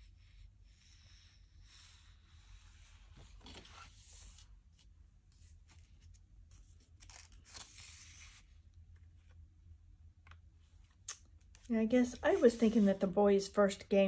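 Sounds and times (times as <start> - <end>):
planner pages turning: 3.2 - 8.5.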